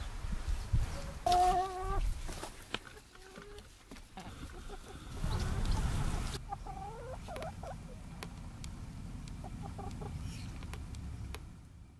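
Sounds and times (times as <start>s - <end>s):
hens clucking: 1.0s - 8.3s, 9.3s - 10.5s.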